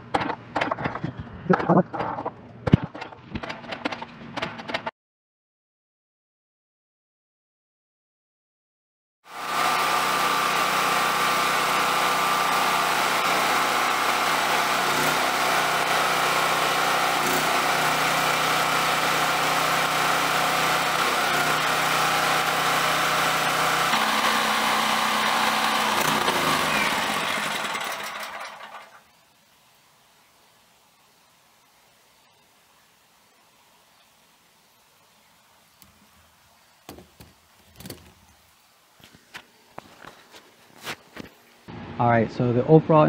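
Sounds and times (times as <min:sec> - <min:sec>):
portable generator running: 0:09.3 - 0:29.2.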